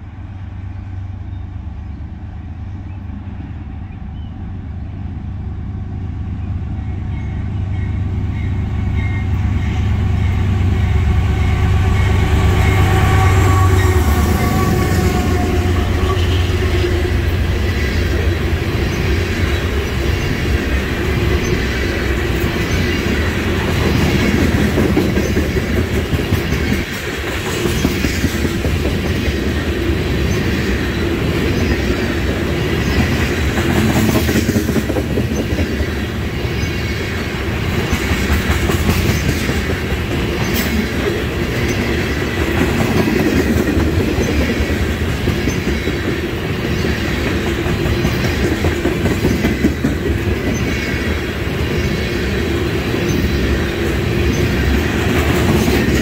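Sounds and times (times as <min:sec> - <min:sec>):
diesel locomotive rumbling: 0:00.0 - 0:56.0
train wheels clattering on rails: 0:12.5 - 0:56.0.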